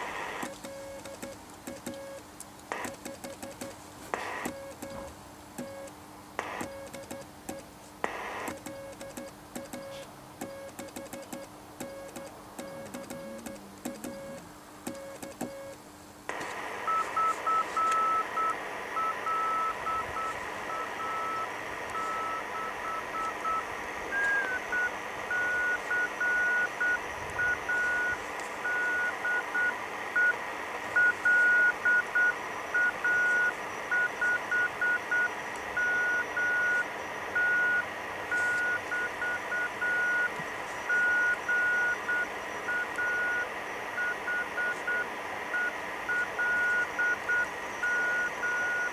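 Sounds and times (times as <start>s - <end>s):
radio receiver hiss: 0.0s - 48.9s
morse code beeping tone: 8.5s - 15.8s, 16.9s - 30.4s, 31.0s - 48.9s.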